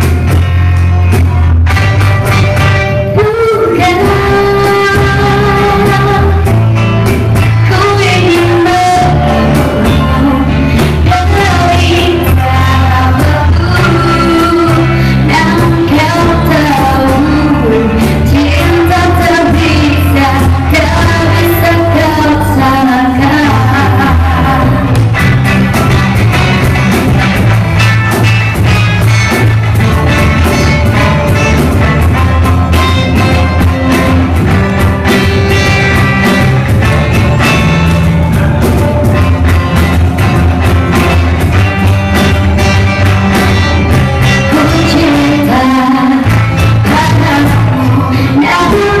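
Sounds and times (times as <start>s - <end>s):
live band playing pop song: 0.0s - 49.0s
woman singing: 3.0s - 6.5s, 7.4s - 25.1s, 43.6s - 49.0s.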